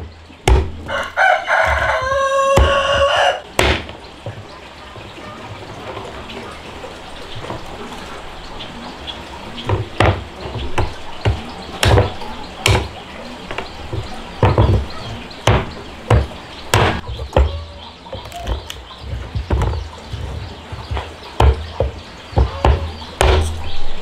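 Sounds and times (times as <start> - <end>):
chopping strikes: 0.4 - 0.9, 2.5 - 4.0, 9.7 - 17.6, 21.4 - 23.6.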